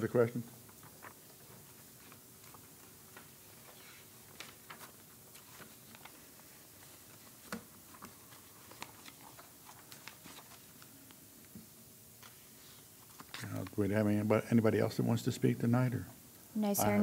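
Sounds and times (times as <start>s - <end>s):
faint clicks and taps: 7.4s - 12.4s.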